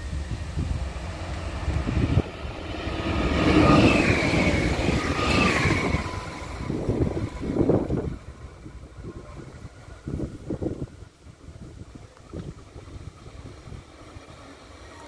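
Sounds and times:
traction motor whine: 0.0s - 8.4s
train wheels rumbling on rails: 0.0s - 15.0s.

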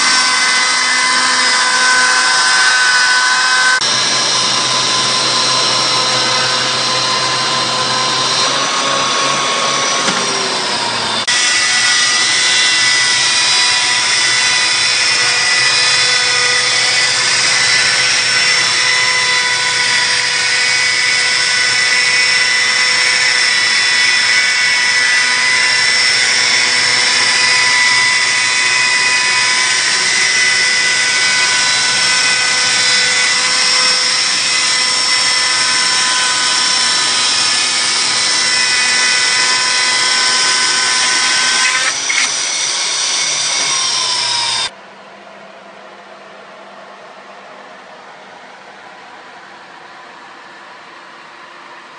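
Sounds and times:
chainsaw mill whining: 0.0s - 44.7s.

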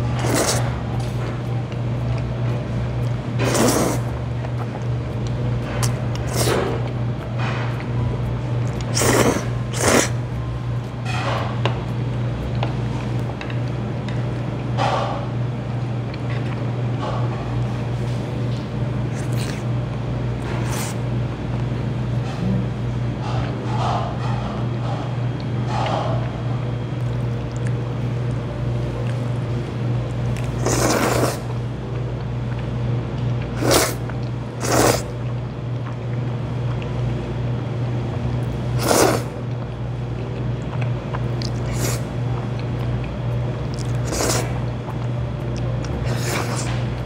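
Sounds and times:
steady low hum: 0.0s - 47.0s
noodles slurped: 0.1s - 0.7s, 3.4s - 4.1s, 6.2s - 6.8s, 8.7s - 10.2s, 30.3s - 31.6s, 33.4s - 35.2s, 38.8s - 39.3s, 40.7s - 46.9s.

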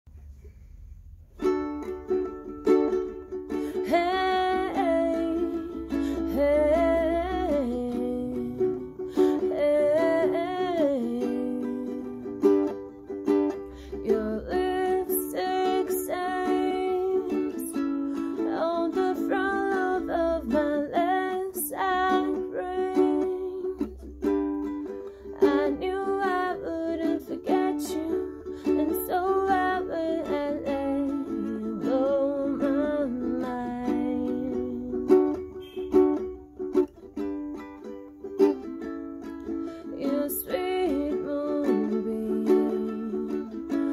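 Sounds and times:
ukulele strumming chords: 0.1s - 43.9s
person singing high melody: 3.9s - 12.3s.

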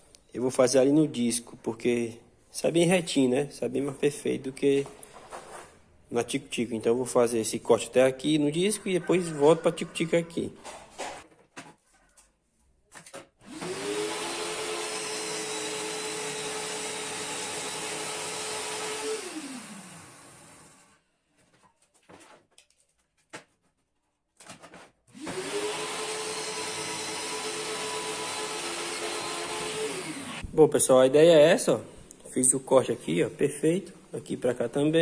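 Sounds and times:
circular saw cutting: 13.4s - 20.9s, 25.2s - 30.5s.

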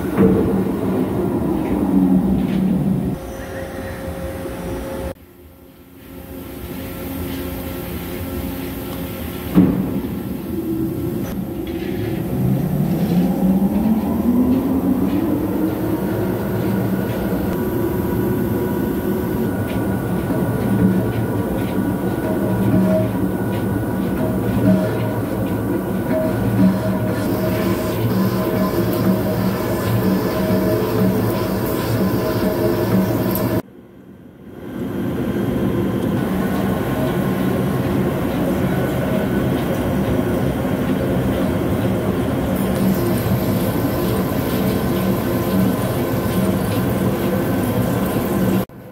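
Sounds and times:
lathe machine hum: 10.1s - 33.6s
lathe cutting steel: 24.2s - 33.6s.

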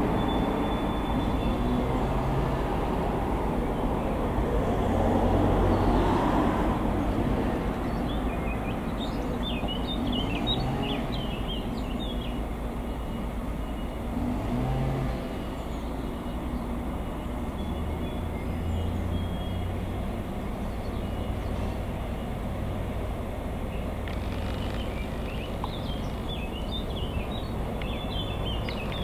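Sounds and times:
bird chirping: 0.0s - 2.2s, 7.8s - 22.7s, 23.6s - 29.0s
diesel locomotive rumbling: 0.0s - 29.0s.

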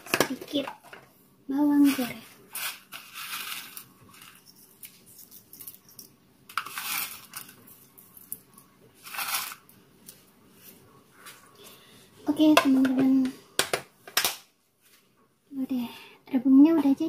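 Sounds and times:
fried shallots rustling: 1.6s - 5.9s, 9.0s - 10.2s.

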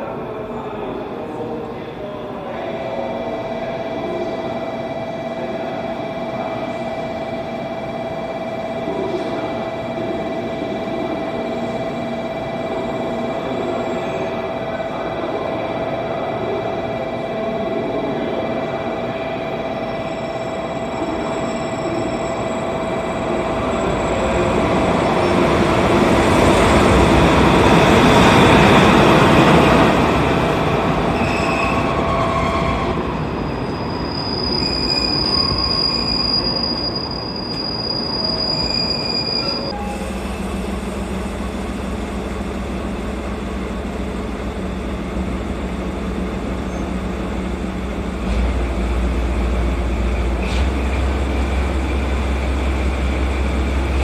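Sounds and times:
train wheel and brake squeal: 31.2s - 40.4s, 46.6s - 47.1s
diesel locomotive idling: 39.7s - 54.0s.

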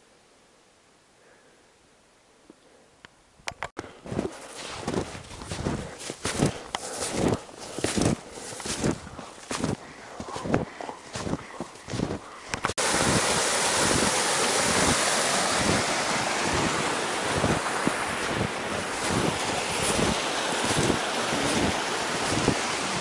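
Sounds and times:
footsteps in snow: 3.8s - 13.2s, 16.5s - 23.0s
wind buffeting microphone: 4.1s - 23.0s.

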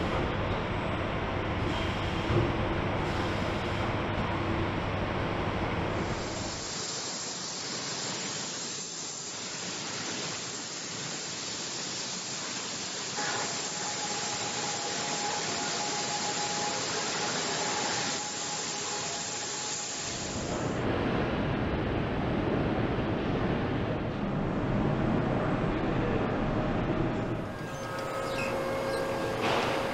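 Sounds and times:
spray booth hiss: 6.0s - 20.8s.

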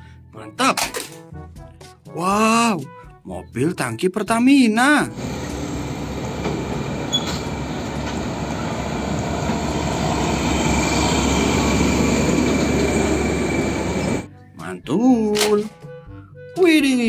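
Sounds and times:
faint high whine: 5.1s - 14.3s
truck diesel engine driving past: 5.1s - 14.3s.

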